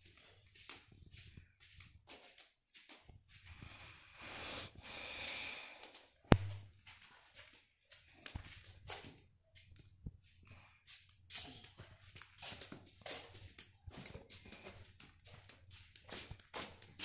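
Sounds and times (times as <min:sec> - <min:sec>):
footsteps on gritty concrete: 0:06.4 - 0:17.0.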